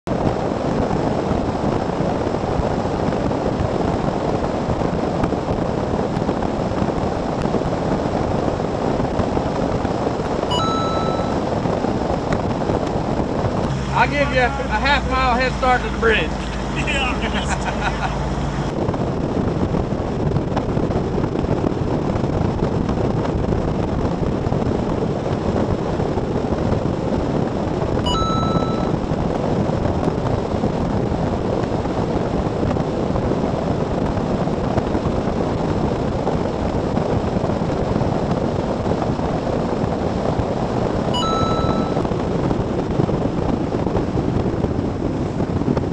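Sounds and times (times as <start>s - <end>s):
wind and water rushing: 0.1s - 45.9s
wind buffeting microphone: 0.1s - 45.9s
thin steady tone: 10.5s - 11.6s, 28.1s - 29.0s, 41.2s - 42.1s
boat engine: 13.0s - 18.7s.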